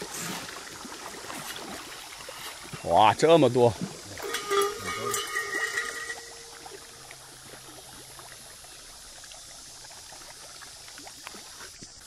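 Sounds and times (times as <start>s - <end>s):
fish splashing in pond water: 0.0s - 12.0s.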